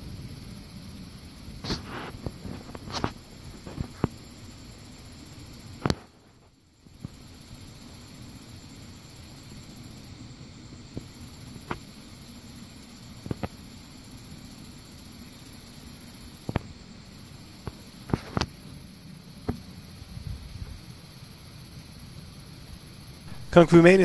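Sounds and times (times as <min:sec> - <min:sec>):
steady low hum: 0:10.1 - 0:24.0.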